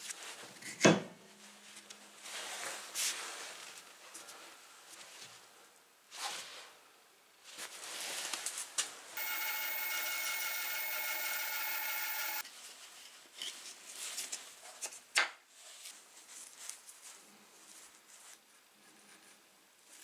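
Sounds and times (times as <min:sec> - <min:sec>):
loud steady fixed-pitch tone: 0:09.2 - 0:12.4.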